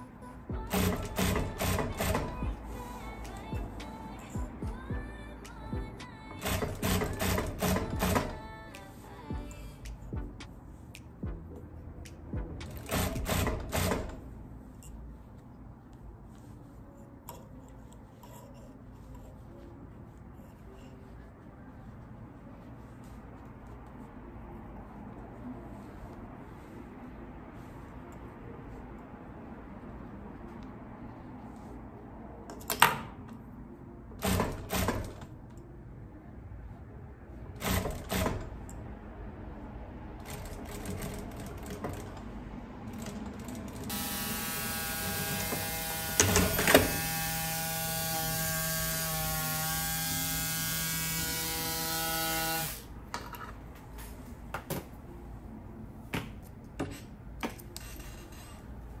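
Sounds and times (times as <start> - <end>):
sewing machine running: 0.7 - 2.4, 6.4 - 8.4, 12.8 - 14.2, 37.6 - 38.5
sewing machine clicking bursts: 0.7 - 2.5, 6.4 - 8.4, 12.6 - 14.2, 34.2 - 35.2, 37.6 - 38.5.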